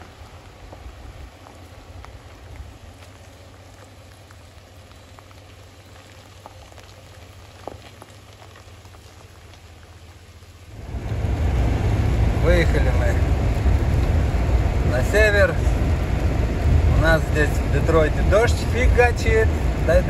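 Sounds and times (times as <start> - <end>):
car driving in rain: 0.0 - 20.0
raindrops ticking: 0.0 - 20.0
steady rain: 0.0 - 20.0.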